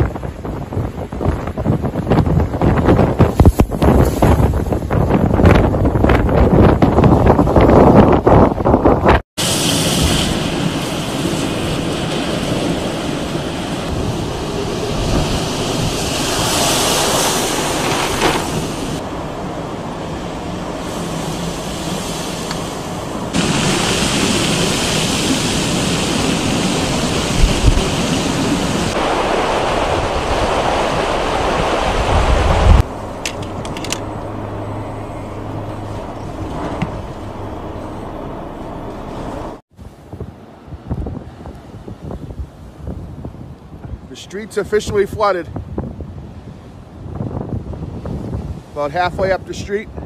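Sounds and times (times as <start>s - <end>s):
wind buffeting microphone: 0.0s - 50.0s
surf: 9.4s - 33.7s.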